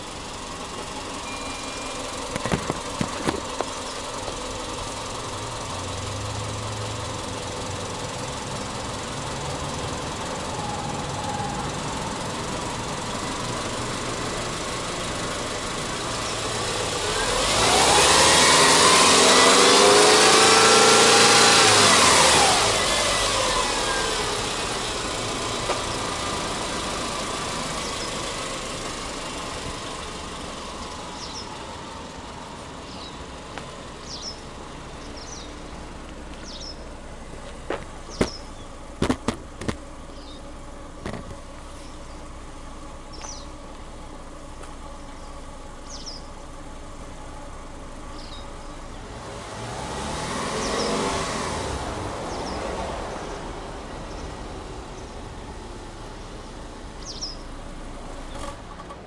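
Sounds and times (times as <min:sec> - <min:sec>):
car engine revving and idling: 0:00.0 - 0:59.0
sharp knocks: 0:39.0 - 0:39.8.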